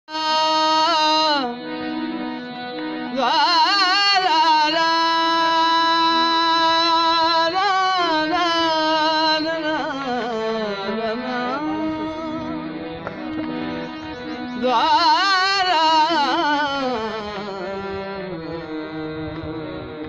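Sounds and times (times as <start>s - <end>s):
man singing folk melody: 0.1s - 1.6s, 3.1s - 12.8s, 14.4s - 18.7s
harmonium playing: 0.1s - 20.0s.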